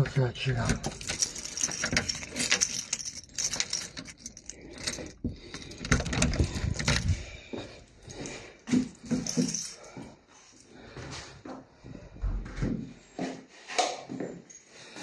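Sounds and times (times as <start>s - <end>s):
keys jangling and clicking: 0.6s - 10.7s
door opening by lever handle: 4.9s - 7.2s.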